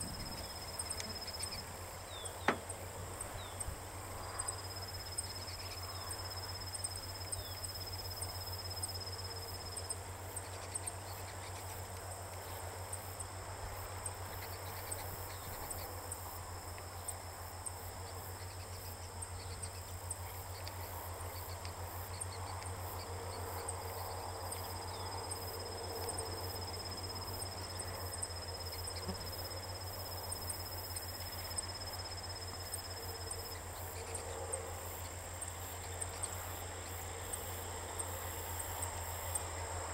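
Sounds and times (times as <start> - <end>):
insect trilling: 0.0 - 2.7
constant low hum: 0.0 - 39.9.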